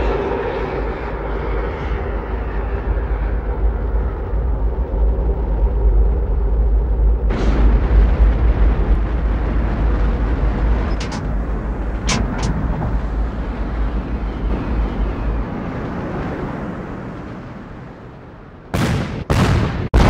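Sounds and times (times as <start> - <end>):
rocket engine rumble: 0.0 - 20.0.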